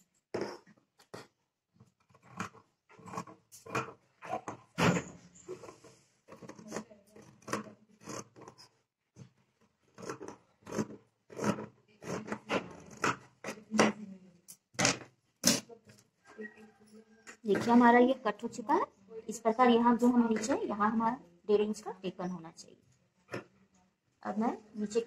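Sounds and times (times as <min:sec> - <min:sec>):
scissors cutting fabric: 0:00.0 - 0:09.3, 0:09.9 - 0:14.6.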